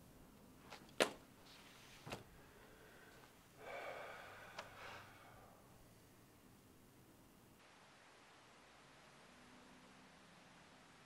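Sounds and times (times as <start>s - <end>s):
faint clicks: 4.5s - 4.8s.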